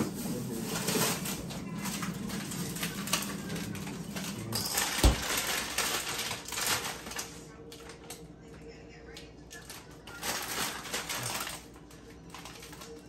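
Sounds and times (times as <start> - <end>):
kitchen items clicking and knocking: 0.0 - 7.3.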